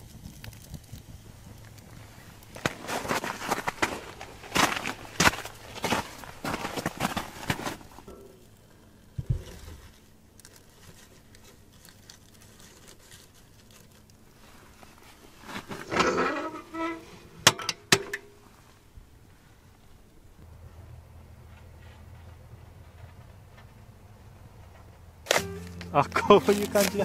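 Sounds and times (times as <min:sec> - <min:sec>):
firewood scraping metal stove: 0:00.0 - 0:18.8.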